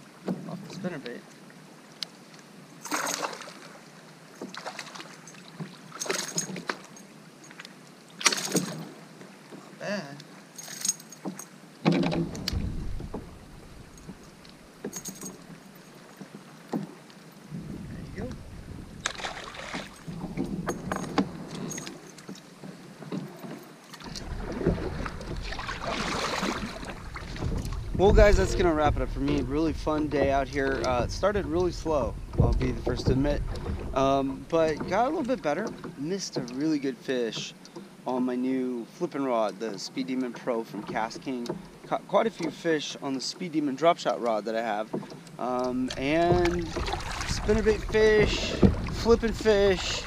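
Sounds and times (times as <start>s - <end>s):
fish splashing at water surface: 2.8s - 3.8s, 19.0s - 21.2s, 24.0s - 27.9s, 46.0s - 50.0s
water splash: 2.8s - 7.6s, 8.2s - 9.1s, 16.7s - 22.4s, 23.9s - 35.4s, 45.4s - 50.0s
wind rumbling on microphone: 12.0s - 14.4s, 17.5s - 21.8s, 24.1s - 35.3s, 45.7s - 50.0s
gear knocking on kayak: 17.5s - 36.5s, 44.8s - 50.0s.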